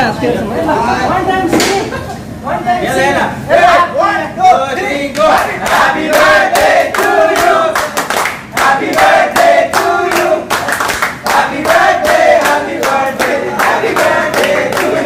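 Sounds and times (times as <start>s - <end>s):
men singing together: 5.2s - 10.6s, 11.2s - 15.0s
hands clapping in rhythm: 5.2s - 15.0s.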